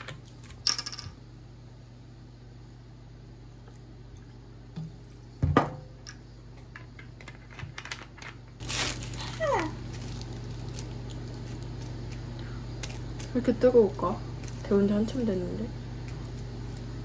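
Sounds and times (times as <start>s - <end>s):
plastic wrapper crinkling: 8.6s - 13.5s, 14.4s - 14.7s.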